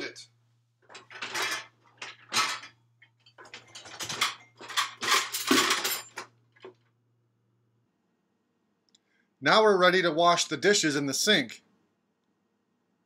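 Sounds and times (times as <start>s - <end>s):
dishes and pans clattering: 0.9s - 6.3s.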